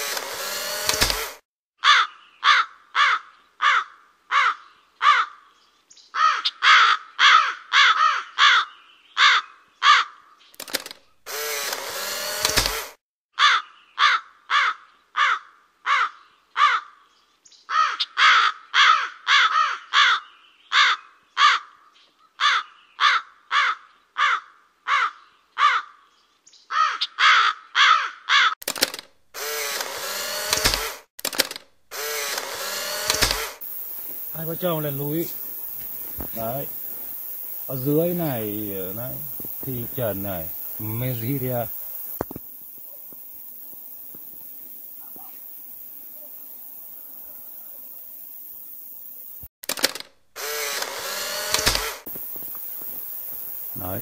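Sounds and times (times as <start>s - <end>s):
bird calling harsh notes: 6.1s - 10.2s, 31.9s - 42.2s.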